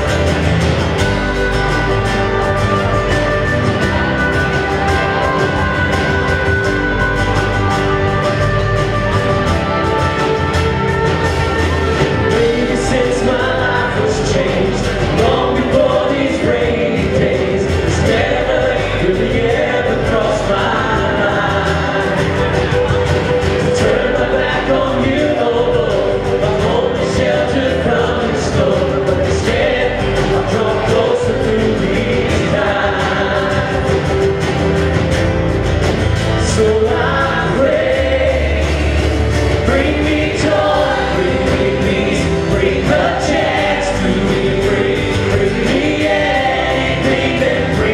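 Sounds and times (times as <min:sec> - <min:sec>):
acoustic guitar: 0:00.0 - 0:47.9
band playing steady beat: 0:00.0 - 0:47.9
vocalists and choir singing: 0:00.0 - 0:47.9.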